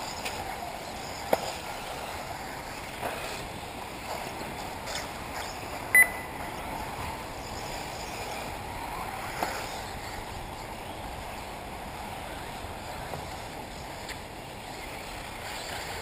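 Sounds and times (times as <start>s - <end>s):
rc buggy motors and tyres hissing: 0.0s - 16.0s
loud electronic beep: 6.0s - 6.3s.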